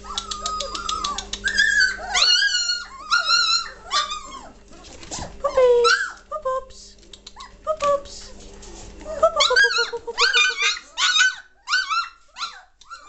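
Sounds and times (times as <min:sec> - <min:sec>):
puppies whining and yelping: 0:00.0 - 0:06.3, 0:07.4 - 0:07.6, 0:09.0 - 0:13.0
patter of quick clicks: 0:07.0 - 0:08.0.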